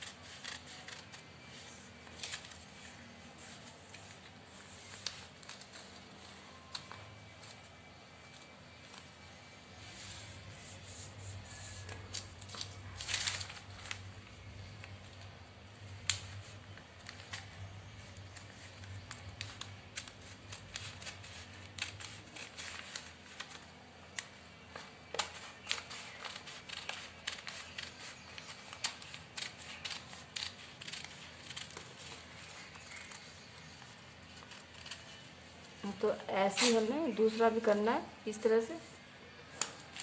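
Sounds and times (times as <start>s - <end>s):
shears snipping paper: 0.0s - 4.2s, 18.3s - 35.3s, 36.5s - 36.9s
paper rustling: 11.3s - 15.2s, 16.0s - 35.8s.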